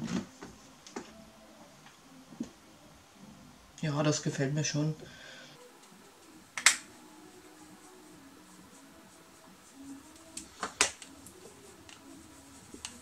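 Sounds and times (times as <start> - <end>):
make-up brush brushing skin: 5.6 - 13.0
sharp plastic clicks: 6.6 - 6.8.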